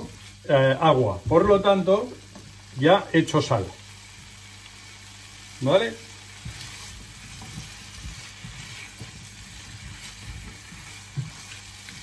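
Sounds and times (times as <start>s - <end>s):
vegetables sizzling in frying pan: 0.0s - 12.0s
spatula scraping pan: 6.5s - 12.0s.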